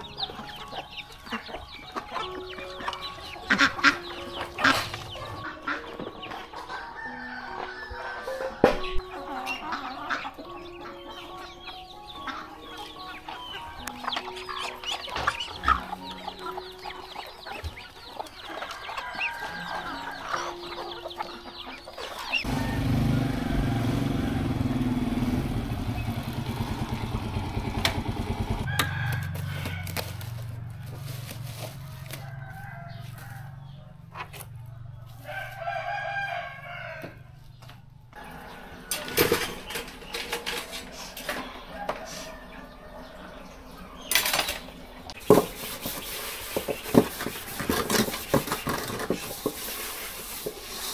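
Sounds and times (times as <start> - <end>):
chickens clucking: 0.0 - 50.9
rooster crowing: 6.7 - 8.7, 18.6 - 20.7, 22.4 - 25.3, 28.5 - 31.1, 31.8 - 34.1, 34.9 - 37.3, 41.6 - 43.7
small motorbike engine: 22.4 - 30.8.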